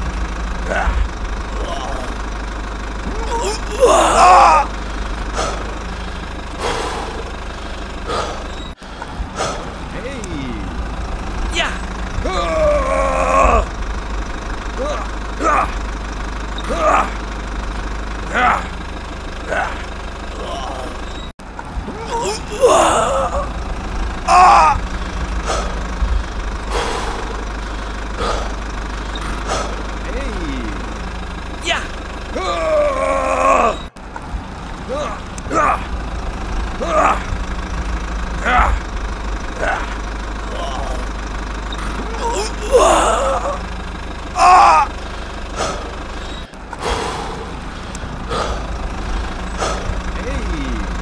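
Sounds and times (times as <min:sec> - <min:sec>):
small vehicle engine hum: 0:00.0 - 0:51.0
loud voice-like exclamation: 0:00.7 - 0:02.2, 0:03.2 - 0:04.7, 0:09.9 - 0:10.8, 0:11.5 - 0:13.7, 0:14.8 - 0:15.8, 0:16.7 - 0:17.2, 0:18.3 - 0:18.7, 0:19.5 - 0:21.0, 0:21.9 - 0:23.5, 0:24.3 - 0:24.8, 0:30.0 - 0:30.9, 0:31.6 - 0:33.9, 0:34.9 - 0:35.9, 0:36.8 - 0:37.4, 0:38.4 - 0:38.9, 0:39.6 - 0:41.1, 0:42.1 - 0:43.7, 0:44.4 - 0:44.9, 0:50.2 - 0:51.0.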